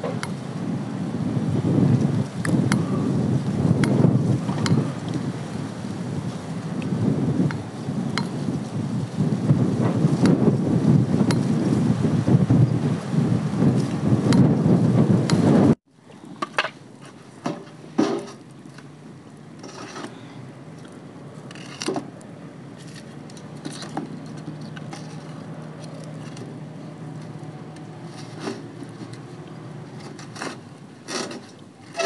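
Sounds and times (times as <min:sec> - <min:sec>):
wind buffeting microphone: 0:00.0 - 0:15.8, 0:18.9 - 0:32.0.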